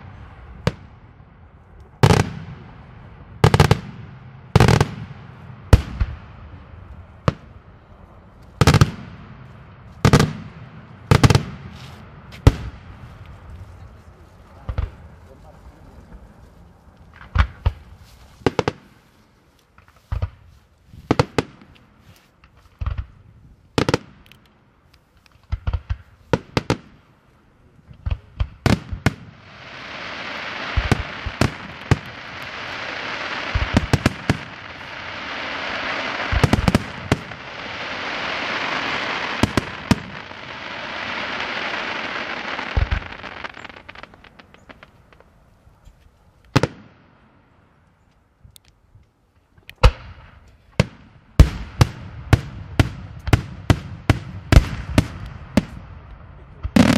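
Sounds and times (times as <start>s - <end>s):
firework bangs: 0.0s - 7.7s, 8.5s - 13.5s, 17.1s - 19.0s, 28.0s - 45.4s, 46.5s - 47.2s, 49.8s - 56.9s
firework crackling: 28.0s - 45.4s, 56.6s - 56.9s.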